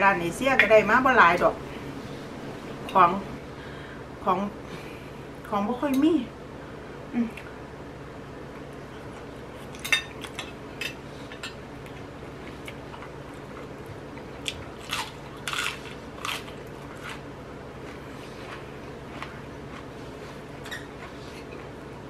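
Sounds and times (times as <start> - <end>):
crunchy chewing: 14.4 - 21.8.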